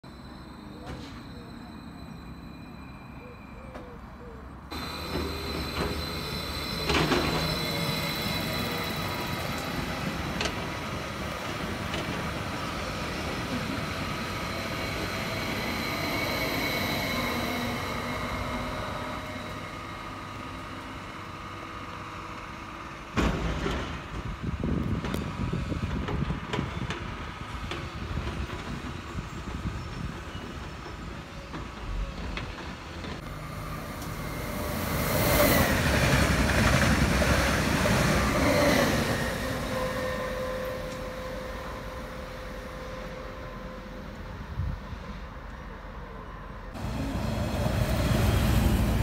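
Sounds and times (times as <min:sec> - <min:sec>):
train wheels rumbling on rail: 0:04.7 - 0:49.0
thin wheel squeal: 0:04.8 - 0:09.4.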